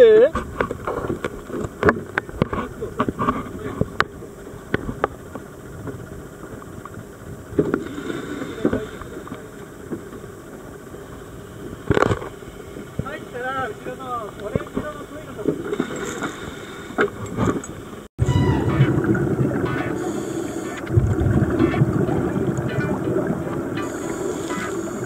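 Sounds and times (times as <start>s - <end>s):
scuba gear clattering on deck: 14.4s - 17.8s.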